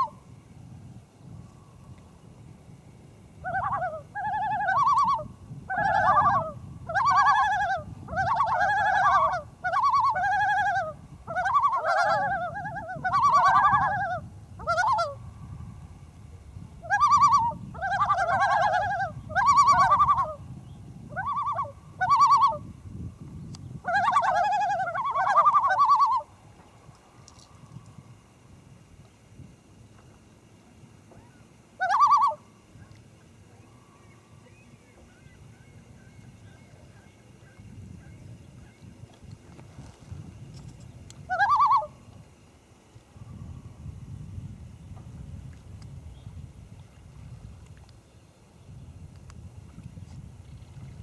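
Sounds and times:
loons calling tremolo: 3.4s - 15.3s, 23.8s - 26.4s, 31.8s - 32.6s, 41.3s - 42.0s.

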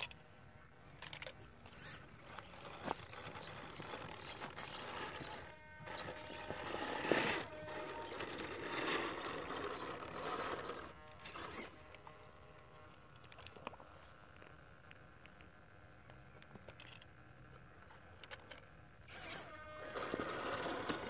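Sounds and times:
rc car motor whining: 1.6s - 12.8s, 19.0s - 21.0s
tyres scraping on rock: 1.7s - 11.7s.

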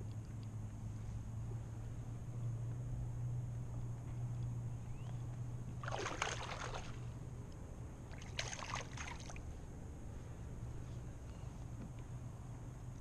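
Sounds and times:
water splashing beside a kayak: 5.8s - 7.1s, 8.1s - 9.4s.

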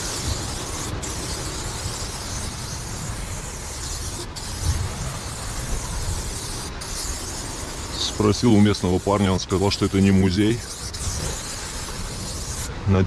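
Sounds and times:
spray-paint can hissing: 0.0s - 12.8s
low steady rumble: 0.0s - 13.0s.

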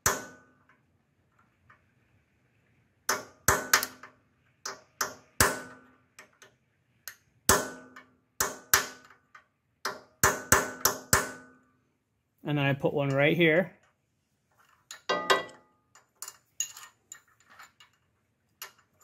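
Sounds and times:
hammer striking steel punch: 0.0s - 0.5s, 3.1s - 4.0s, 4.7s - 5.9s, 7.5s - 9.1s, 9.8s - 11.6s.

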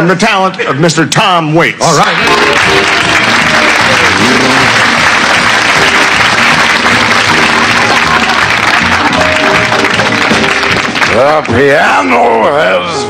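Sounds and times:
audience applauding: 1.8s - 12.1s
piano playing quietly: 2.2s - 11.5s.

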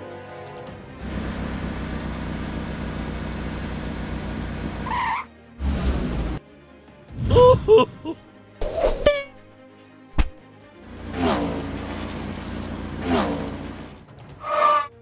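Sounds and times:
cartoon car engine pulsing: 1.0s - 6.4s, 10.9s - 14.0s
tyre screech: 14.4s - 15.0s.

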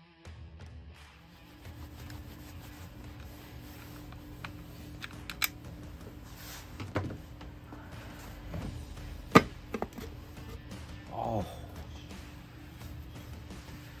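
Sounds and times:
metallic clicks: 4.1s - 5.6s.

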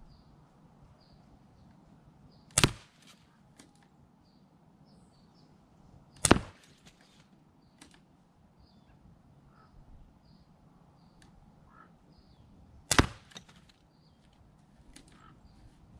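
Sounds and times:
faint bird chirps: 0.0s - 2.6s, 8.6s - 12.9s, 15.0s - 15.9s
pellet pistol shots: 2.5s - 3.2s, 6.2s - 7.0s, 12.9s - 13.7s.

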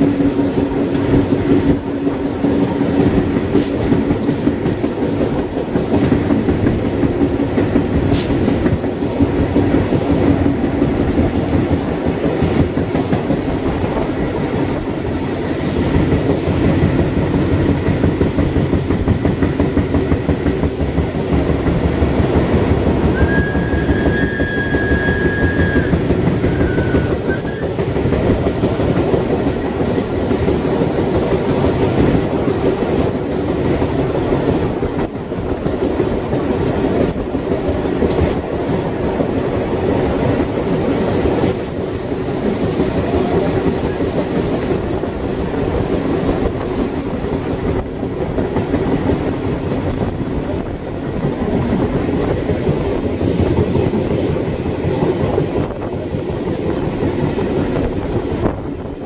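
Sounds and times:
train wheels rumbling on rails: 0.0s - 59.0s
wheels squealing: 41.2s - 48.0s.

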